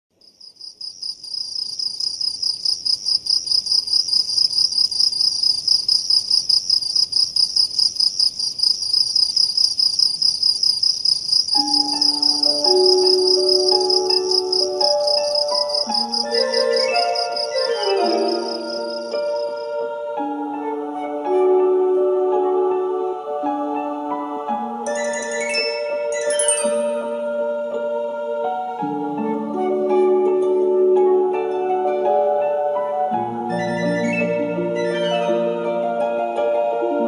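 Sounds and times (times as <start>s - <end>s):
crickets chirping: 0.1s - 20.3s, 24.9s - 27.2s
soft musical notes: 11.6s - 37.0s.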